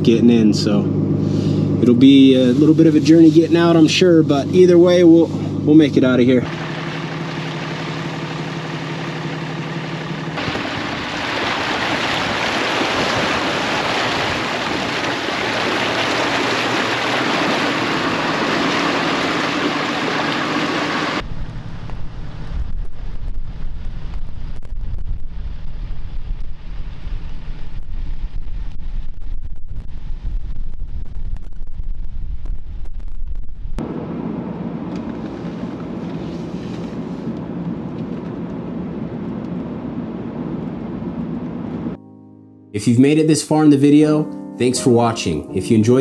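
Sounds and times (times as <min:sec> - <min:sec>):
engine and road noise rushing: 0:00.0 - 0:30.4, 0:33.5 - 0:42.0
truck engine running: 0:00.0 - 0:31.3, 0:33.2 - 0:42.0
wind rumbling on microphone: 0:10.4 - 0:33.8.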